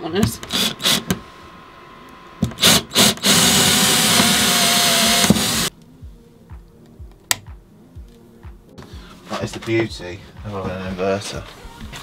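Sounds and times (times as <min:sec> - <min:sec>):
power drill boring through wood: 0:00.4 - 0:01.1, 0:02.5 - 0:05.7.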